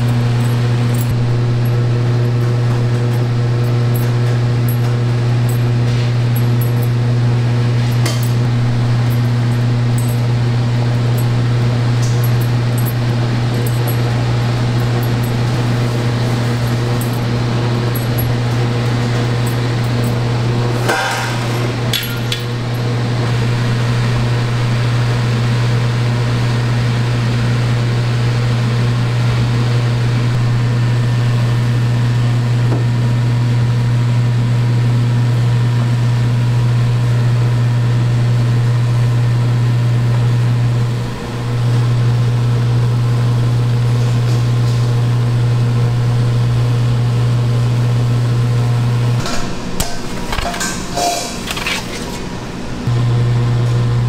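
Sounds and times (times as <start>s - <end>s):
kitchen equipment humming: 0.0s - 54.0s.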